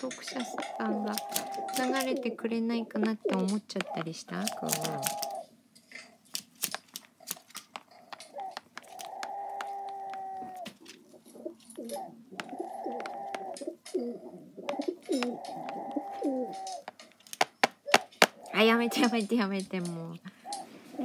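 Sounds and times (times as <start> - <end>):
beak tapping on screen: 0.0 - 5.4, 6.3 - 10.8, 12.4 - 14.0, 14.6 - 20.6
crow calls through speaker: 0.3 - 2.4, 3.1 - 5.5.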